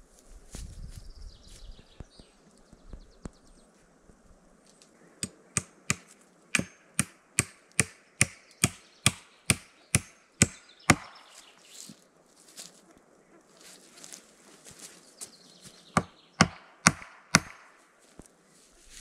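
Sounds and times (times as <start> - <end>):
axe chopping wood: 5.2 - 11.2, 16.0 - 17.7.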